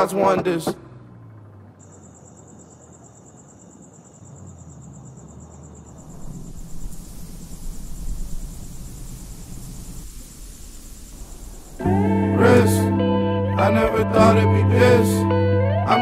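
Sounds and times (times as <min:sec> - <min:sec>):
crickets trilling: 0:01.8 - 0:12.6
low rumble: 0:05.8 - 0:14.8.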